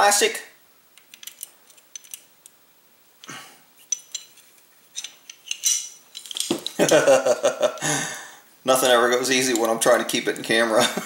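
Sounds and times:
metal gun parts clicking and rattling: 1.0 - 2.3, 3.8 - 7.0, 8.8 - 10.6.

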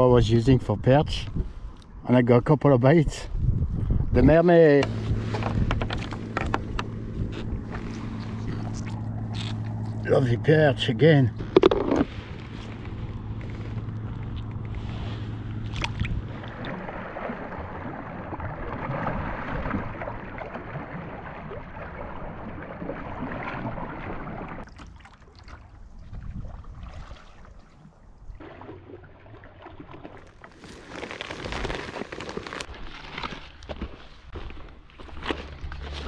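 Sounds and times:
wind: 0.0 - 36.0
water lapping against kayak: 4.6 - 36.0
footsteps rustling through ferns: 30.6 - 36.0.

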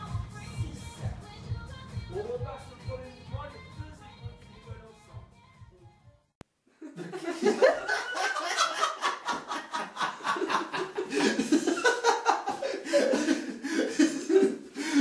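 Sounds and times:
person laughing: 6.8 - 15.0.

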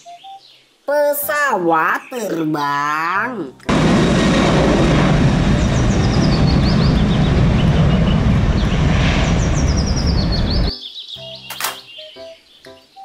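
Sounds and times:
jet engines running: 3.7 - 10.7
high chirps: 5.7 - 13.0.

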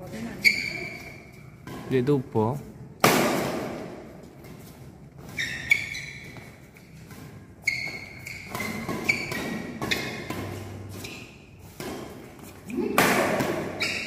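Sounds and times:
high-pitched squeaks: 0.1 - 1.6, 5.2 - 7.0, 7.6 - 11.5
rackets hitting shuttlecock: 3.0 - 4.4, 5.2 - 14.0.

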